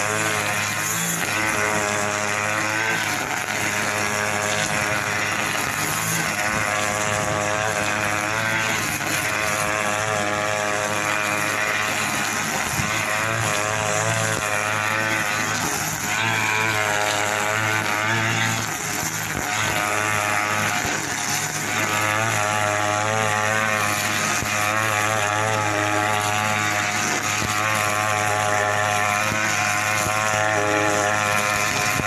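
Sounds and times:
brush cutter running at high revs: 0.0 - 32.0.

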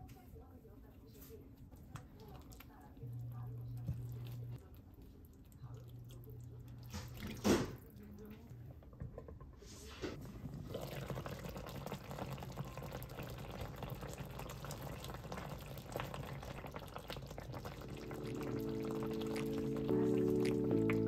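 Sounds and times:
sauce bubbling in a frying pan: 10.2 - 21.0
music: 17.8 - 21.0.

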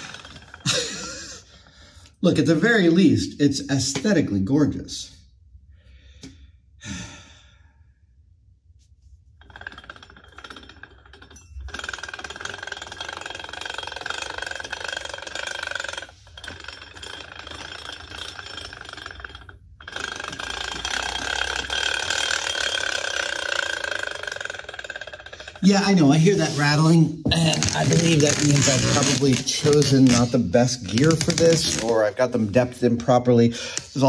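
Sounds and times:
toy car gears whirring and rattling: 0.0 - 1.6, 9.4 - 32.2.

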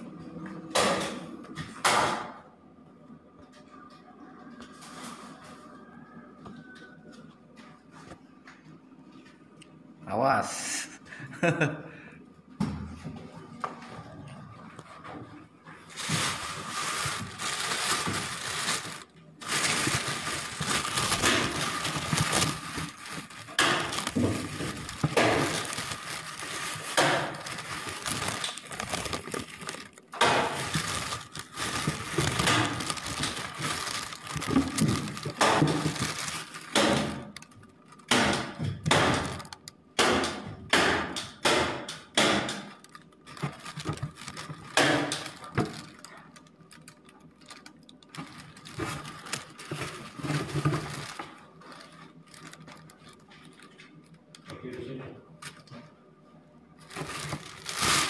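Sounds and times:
plastic sheeting rustling and crackling: 15.7 - 39.6, 42.3 - 54.5, 56.8 - 58.0
crumbly material crunching: 15.7 - 39.7, 42.6 - 54.6, 56.8 - 58.0.

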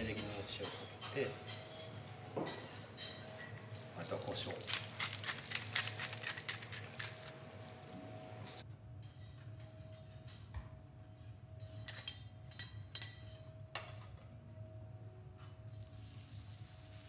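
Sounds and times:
pepper mill grinding: 4.3 - 7.8
metal utensils clinking: 11.6 - 14.2.

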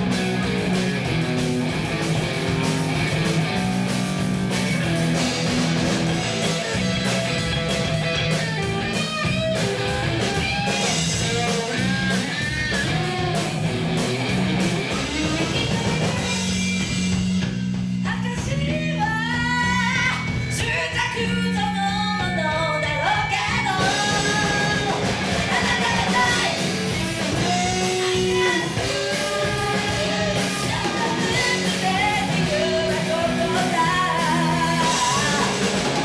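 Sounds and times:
bass and drums: 0.0 - 36.0
electric guitar: 0.0 - 36.0
person singing: 18.1 - 36.0.

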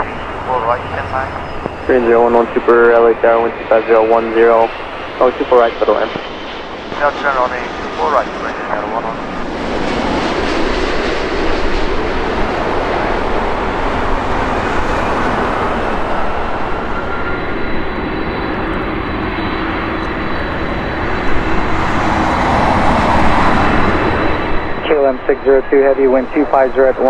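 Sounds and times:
jet airliner landing: 0.0 - 27.0.

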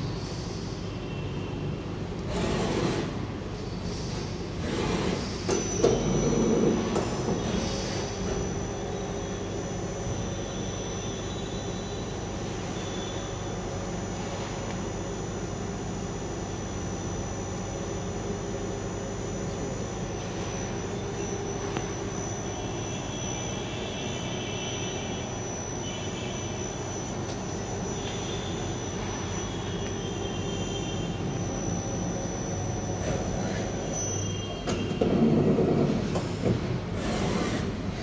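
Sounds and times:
lathe machine hum with high whine: 0.0 - 38.0
high ringing tones: 8.4 - 35.0.

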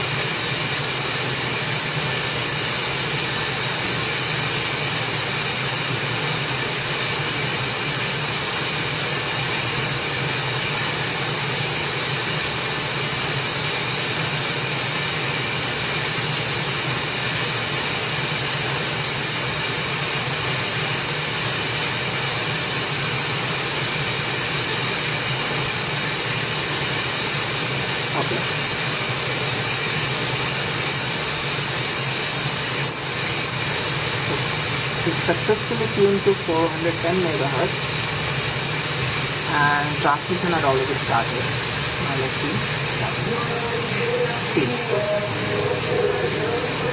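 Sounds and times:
radio static hiss: 24.6 - 46.9.

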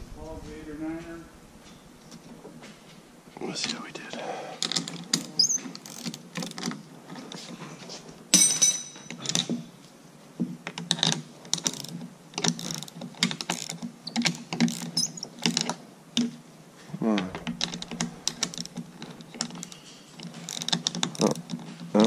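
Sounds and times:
wrenches clinking on metal: 4.6 - 7.2, 8.3 - 9.6, 17.8 - 22.0.

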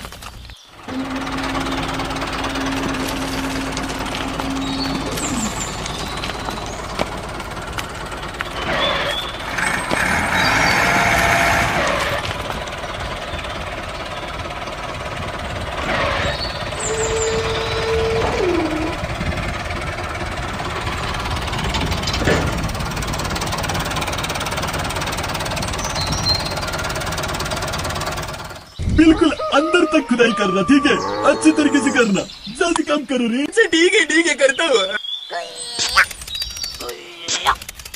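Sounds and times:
small engine rattling: 0.0 - 28.8, 35.8 - 37.9
held tones dropping in pitch: 28.8 - 32.3.

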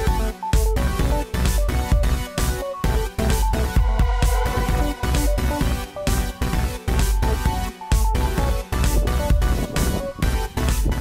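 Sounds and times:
electronic music with synth: 0.0 - 11.0.

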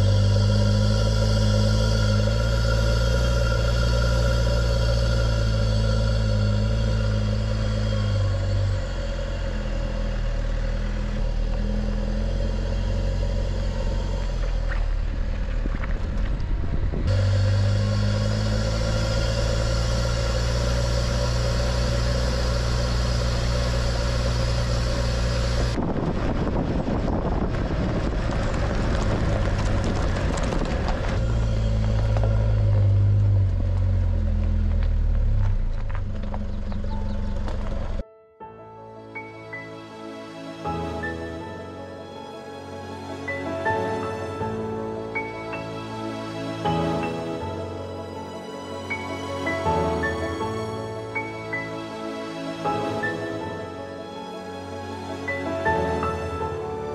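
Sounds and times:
pickup truck engine running: 0.0 - 38.0
rough rumbling: 0.0 - 38.0.

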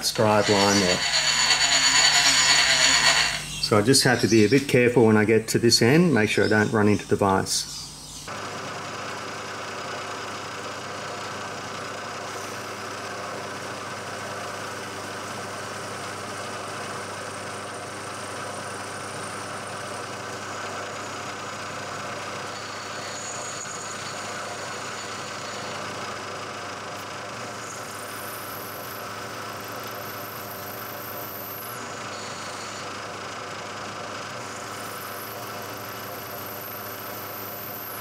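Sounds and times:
milling machine cutting metal: 0.0 - 3.8, 22.2 - 26.2.

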